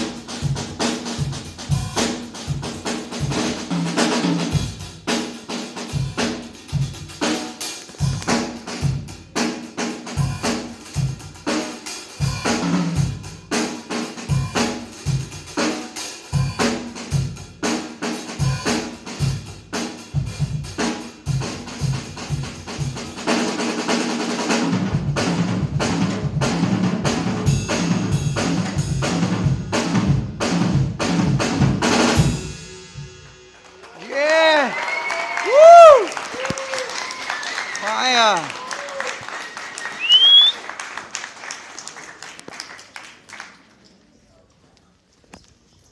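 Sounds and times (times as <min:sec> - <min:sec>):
bass drum: 0:00.0 - 0:05.2, 0:24.6 - 0:33.1
cymbals: 0:00.0 - 0:24.8, 0:31.8 - 0:33.9
snare drum: 0:00.0 - 0:32.5.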